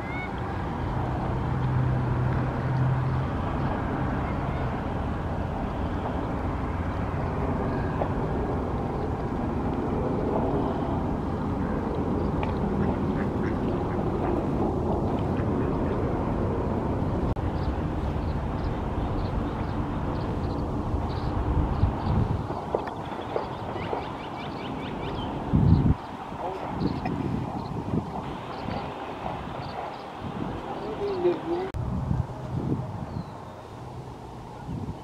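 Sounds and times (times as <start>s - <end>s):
water: 0.0s - 20.6s
low rumble of wind: 0.0s - 35.0s
ducks quacking: 12.8s - 14.1s.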